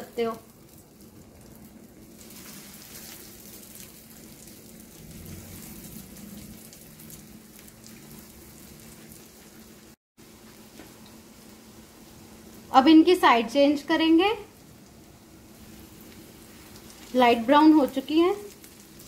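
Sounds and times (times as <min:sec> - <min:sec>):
oil sizzling and crackling: 0:00.0 - 0:19.0.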